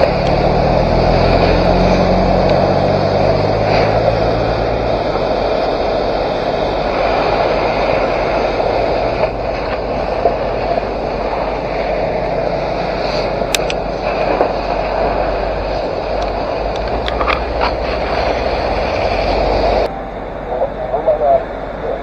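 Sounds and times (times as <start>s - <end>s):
low engine hum: 0.0s - 22.0s
steady rushing noise: 0.0s - 22.0s
sharp clicks: 13.5s - 13.8s.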